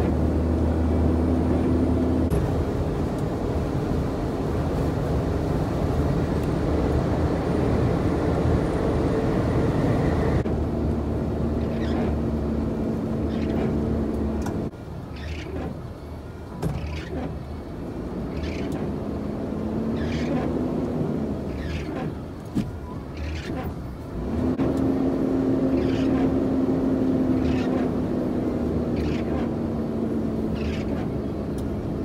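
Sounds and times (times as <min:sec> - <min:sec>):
truck engine and road drone: 0:00.0 - 0:32.0
windscreen wipers swishing: 0:00.0 - 0:32.0.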